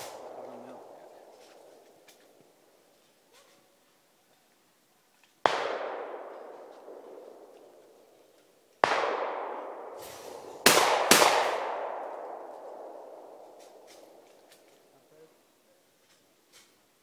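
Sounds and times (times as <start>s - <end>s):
shotgun shots with echo: 0.0s - 1.4s, 5.4s - 7.7s, 8.8s - 14.2s.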